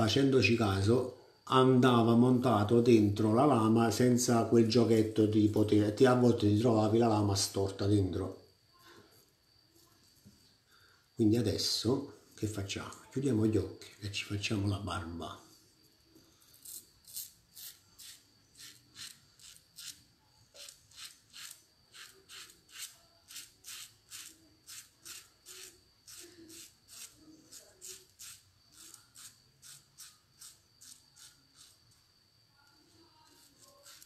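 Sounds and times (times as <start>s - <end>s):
razor scraping stubble: 16.6s - 31.8s, 33.3s - 34.0s.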